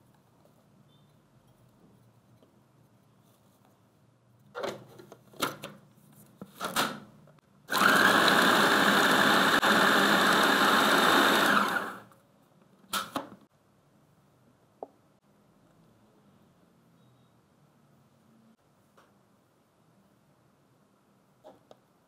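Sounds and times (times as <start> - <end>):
food processor running: 7.7 - 12.1.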